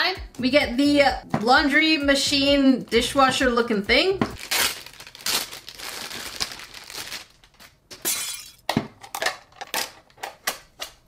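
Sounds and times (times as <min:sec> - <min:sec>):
plastic bag crinkling: 0:04.4 - 0:07.8.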